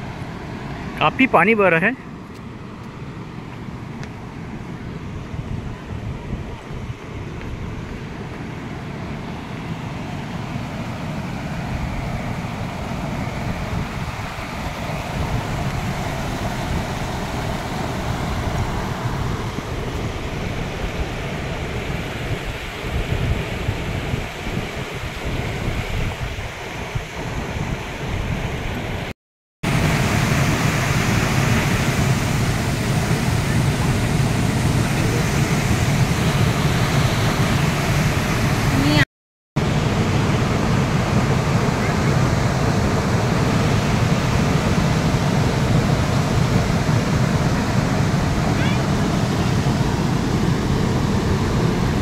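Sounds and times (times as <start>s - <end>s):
waterfall rushing: 0.0s - 2.2s, 29.7s - 39.0s
wind rumble on microphone: 3.5s - 29.1s, 39.6s - 52.0s
river rushing over rapids: 7.1s - 23.0s, 29.7s - 39.0s.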